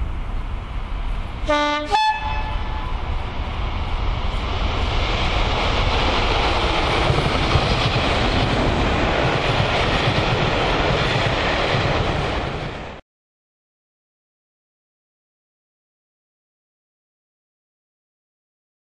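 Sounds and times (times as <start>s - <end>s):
train passing with rumbling engines: 0.0s - 13.0s.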